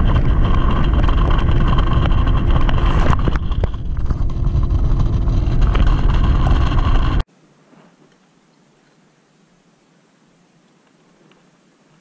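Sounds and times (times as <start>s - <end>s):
outboard motor running: 0.0s - 7.2s
wind buffeting microphone: 0.0s - 7.3s.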